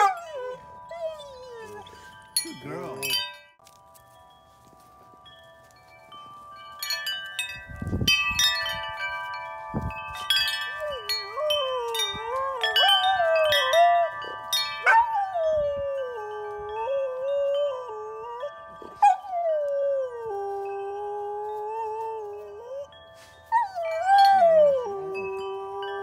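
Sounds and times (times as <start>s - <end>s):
metal wind chimes ringing: 0.0s - 26.0s
dog howling: 10.9s - 14.3s.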